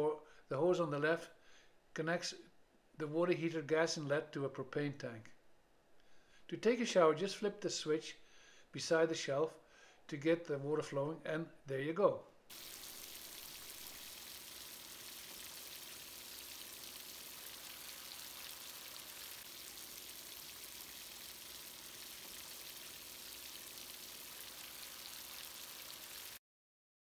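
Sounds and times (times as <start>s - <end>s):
water spraying from shower head: 12.5s - 26.4s.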